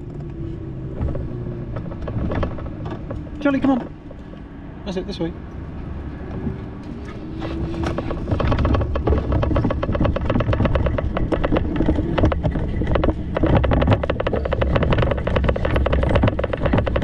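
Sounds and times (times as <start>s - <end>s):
wind rumbling on microphone: 0.0s - 17.0s
bicycle rattling clicks: 7.8s - 17.0s.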